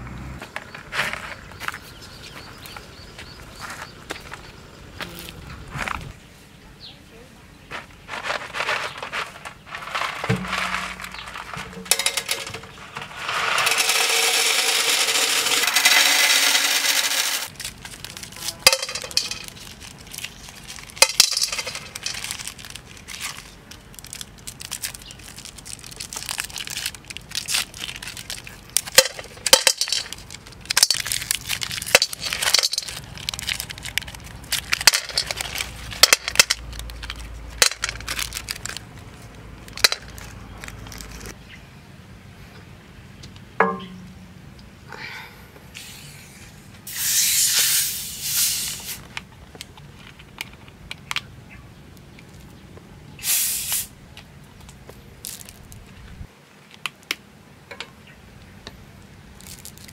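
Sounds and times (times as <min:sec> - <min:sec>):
shells rattling on glass: 0:09.9 - 0:17.5, 0:18.6 - 0:19.6, 0:20.9 - 0:22.5, 0:28.8 - 0:38.7
wrappers crinkling: 0:17.4 - 0:41.4, 0:59.4 - 0:59.9.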